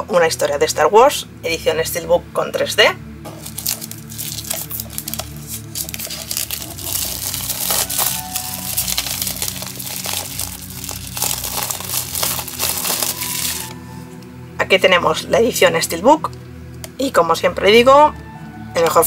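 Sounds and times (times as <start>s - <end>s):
quiet background music: 0.0s - 19.0s
plastic wrap crinkling and tearing: 3.3s - 14.0s.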